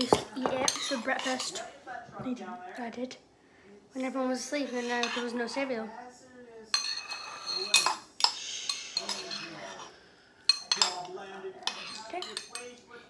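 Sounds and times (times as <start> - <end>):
metal cutlery clinking on a bowl: 0.0 - 1.7, 4.6 - 5.4, 6.7 - 9.9, 10.5 - 12.9.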